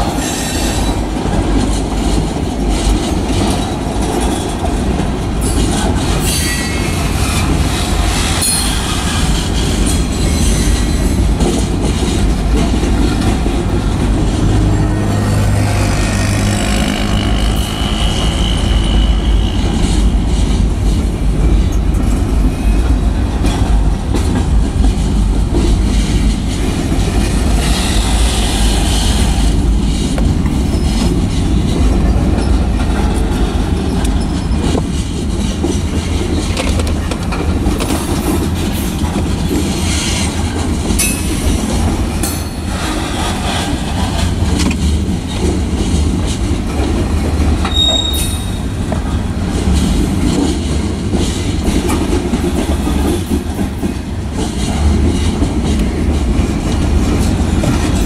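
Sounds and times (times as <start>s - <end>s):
freight train wheels rumbling: 0.0s - 58.0s
high wheel squeals: 47.6s - 48.7s.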